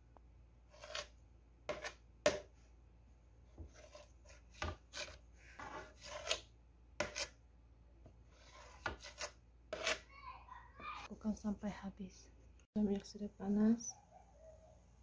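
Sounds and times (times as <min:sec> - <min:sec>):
knife scraping on ceramic plate: 0:00.7 - 0:02.4, 0:03.6 - 0:07.4, 0:08.3 - 0:10.1.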